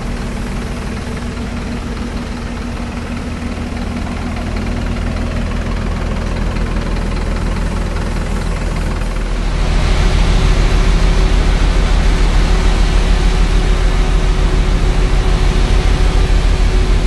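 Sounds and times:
diesel truck engine idling: 0:00.0 - 0:17.0
steady rushing noise: 0:09.2 - 0:17.0.

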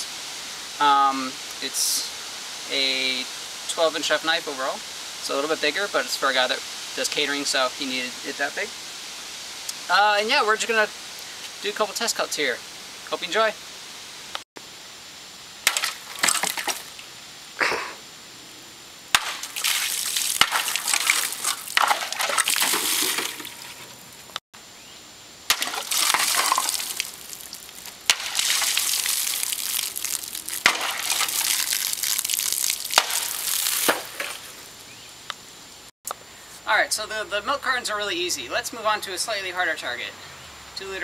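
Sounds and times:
water gushing and splashing: 0:19.2 - 0:24.2, 0:25.5 - 0:34.6.

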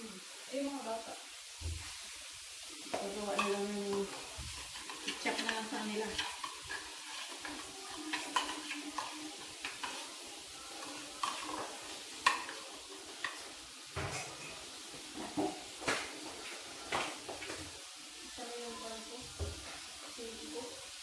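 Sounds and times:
metal spoon stirring in a bowl: 0:03.2 - 0:15.7.

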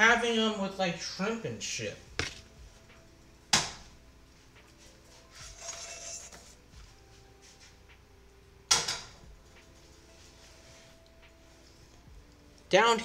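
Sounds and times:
soft rustle: 0:09.7 - 0:12.0.

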